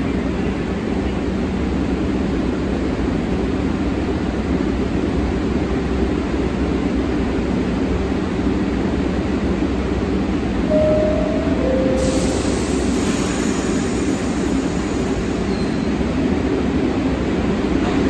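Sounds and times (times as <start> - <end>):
subway train idling rumble: 0.0 - 18.0
two-note door chime: 10.7 - 12.6
air hiss: 11.9 - 15.9.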